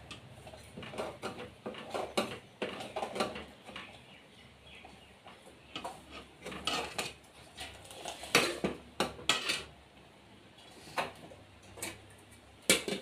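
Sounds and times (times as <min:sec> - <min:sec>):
metal spoon scraping cooking pots: 0:00.0 - 0:04.0, 0:05.2 - 0:09.8, 0:12.7 - 0:13.0.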